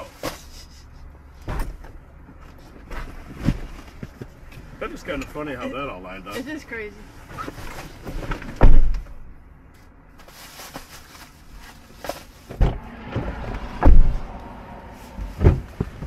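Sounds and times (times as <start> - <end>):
loud thuds: 12.5 - 16.0.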